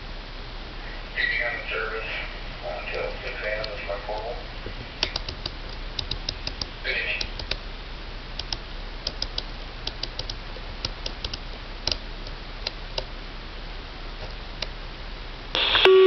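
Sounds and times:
steady hiss: 0.0s - 16.0s
radio static burst: 1.1s - 5.2s, 15.6s - 16.0s.

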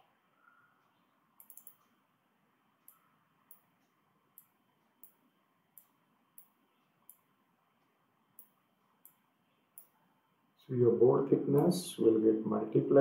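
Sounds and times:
computer mouse clicks: 1.4s - 2.0s.

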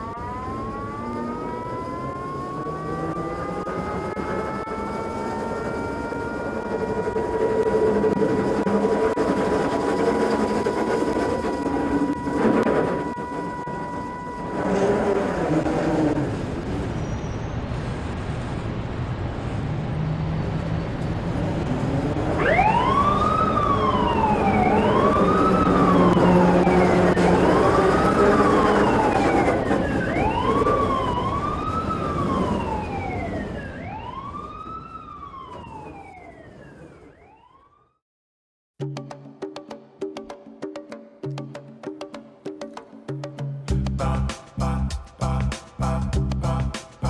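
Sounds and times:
siren wailing: 0.0s - 17.0s, 22.1s - 38.0s.

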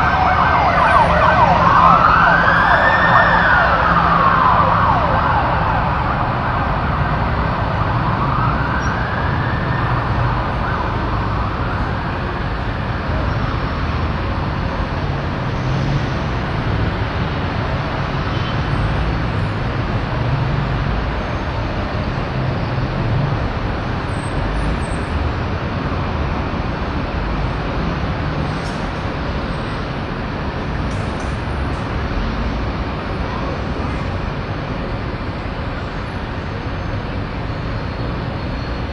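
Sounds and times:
siren wailing: 0.0s - 12.7s
road traffic rumble: 0.0s - 38.9s.

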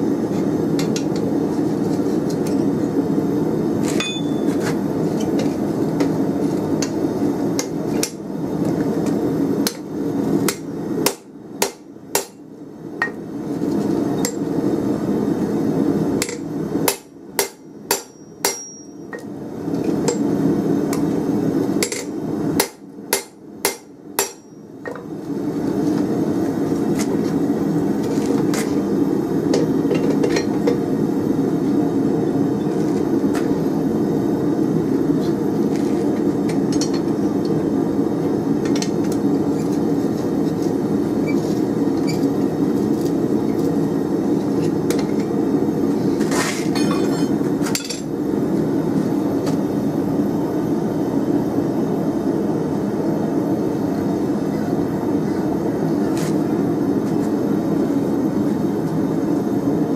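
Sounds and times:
hammer striking steel on anvil: 3.9s - 4.6s, 10.5s - 12.4s, 16.2s - 19.3s, 21.8s - 25.0s.

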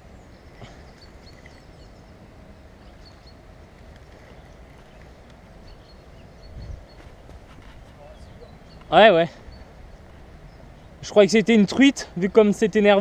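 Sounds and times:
wind rumble on microphone: 1.3s - 11.0s.

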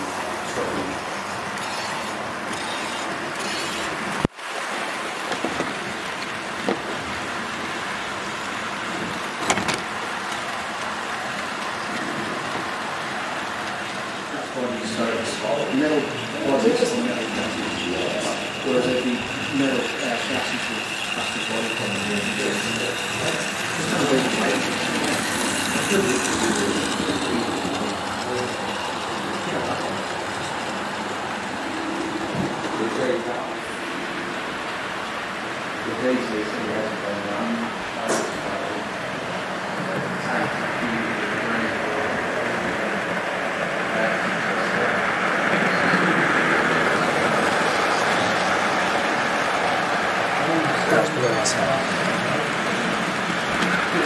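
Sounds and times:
model train wagons rolling on track: 0.0s - 4.3s, 4.9s - 54.0s.

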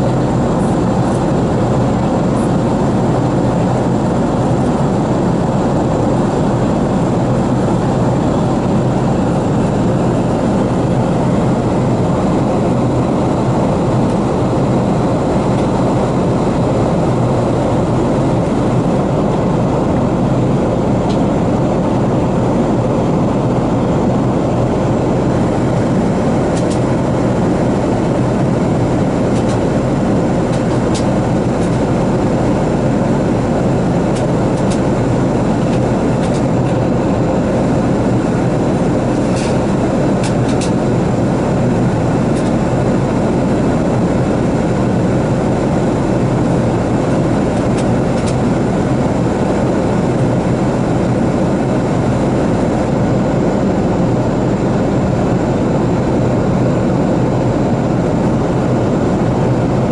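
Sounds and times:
airplane cabin engine rush: 0.0s - 59.9s.

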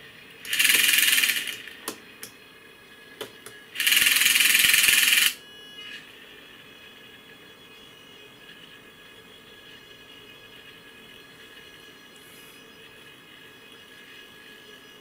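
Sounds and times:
small servo motor whirring: 0.5s - 1.8s, 3.8s - 8.8s.

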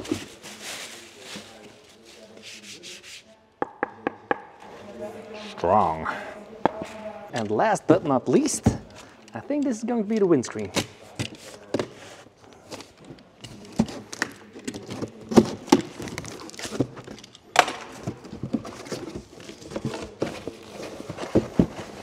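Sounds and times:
plastic wrap rustling: 0.0s - 2.8s.

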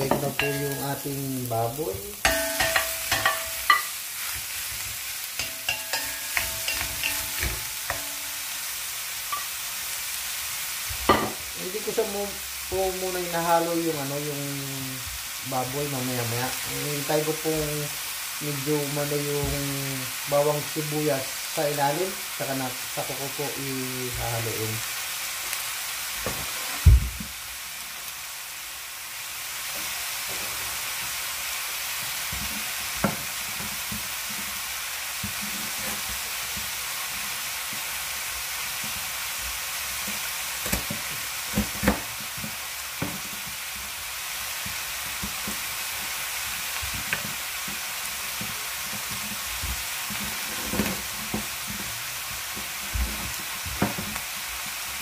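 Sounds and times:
meat sizzling in a wok: 0.0s - 55.0s.

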